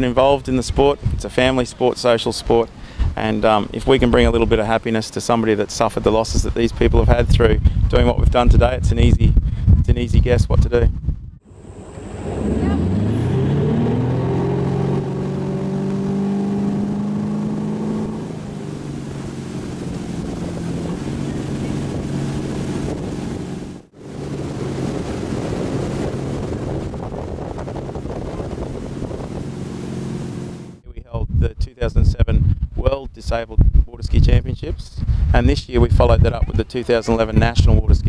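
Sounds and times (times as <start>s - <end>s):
boat engine revving: 11.4s - 30.8s
rush of water and wake: 11.4s - 30.8s.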